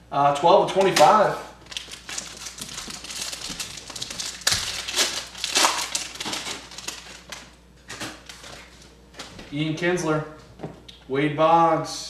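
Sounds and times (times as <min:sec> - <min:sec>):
plastic wrapping crinkling: 0:00.7 - 0:09.5.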